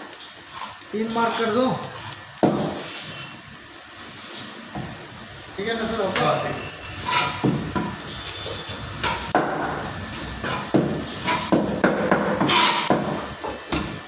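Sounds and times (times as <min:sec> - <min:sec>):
knife blade scraping: 0:06.6 - 0:14.0
knife chopping on cutting board: 0:07.1 - 0:09.8, 0:10.4 - 0:14.0.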